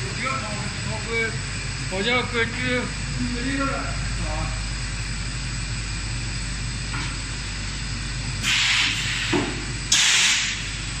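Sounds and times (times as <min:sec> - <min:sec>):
machine hum: 0:00.0 - 0:11.0
short loud hiss: 0:08.4 - 0:10.6.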